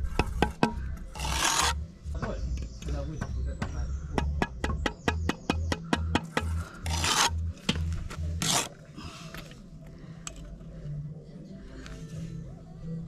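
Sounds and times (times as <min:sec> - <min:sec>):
trowel tapping on spirit level: 0:03.2 - 0:06.6
loud scrapes: 0:06.4 - 0:07.5.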